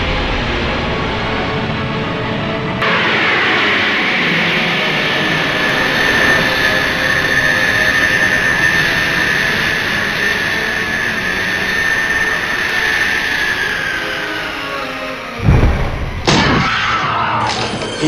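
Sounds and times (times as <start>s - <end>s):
jet engine whine and rush: 0.0s - 16.3s.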